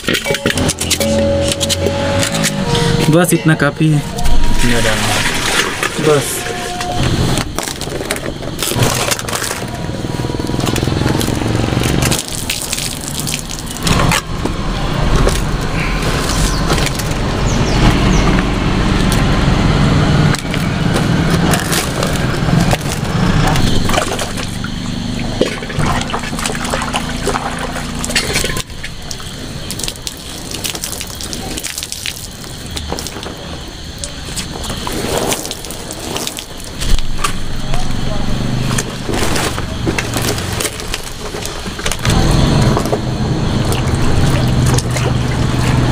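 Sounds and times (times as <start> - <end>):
water splashing on leaves: 3.8 - 6.6, 7.2 - 19.3, 20.2 - 45.9
leaves clicking as handled: 7.4 - 14.5.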